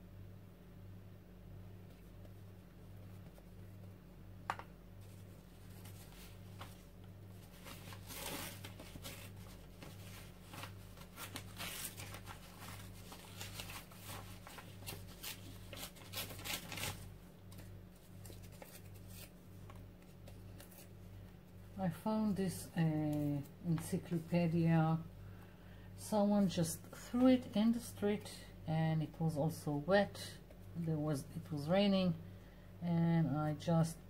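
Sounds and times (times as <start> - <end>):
steady low hum: 0.0 - 34.0
paper rustling and tearing: 5.0 - 21.0.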